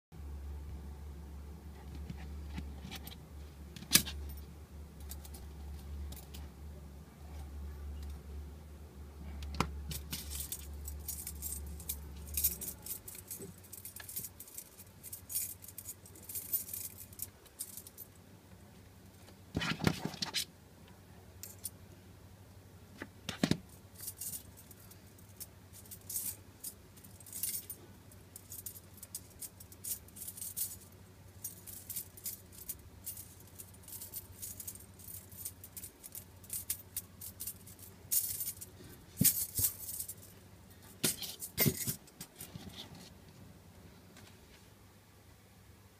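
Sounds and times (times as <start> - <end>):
metal rings clinking and jangling: 9.9 - 18.2, 23.7 - 40.3, 40.9 - 42.4.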